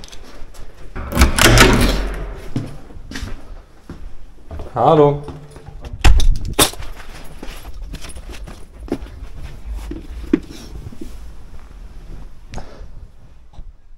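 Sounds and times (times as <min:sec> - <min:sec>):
clothing rustling: 0:06.7 - 0:13.9.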